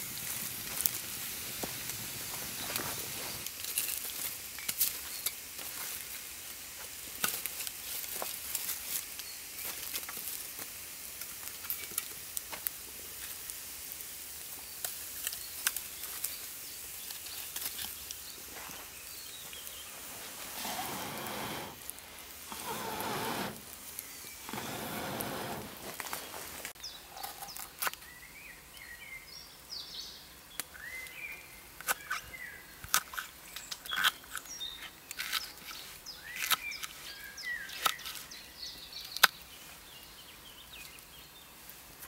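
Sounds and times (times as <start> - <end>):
wood fire crackling: 0.0 - 28.0.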